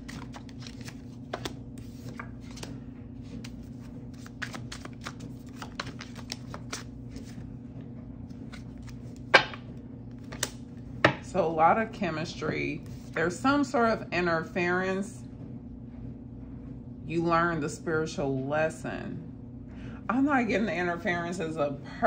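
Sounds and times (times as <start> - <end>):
cards being shuffled: 0.0 - 7.5, 8.3 - 11.2.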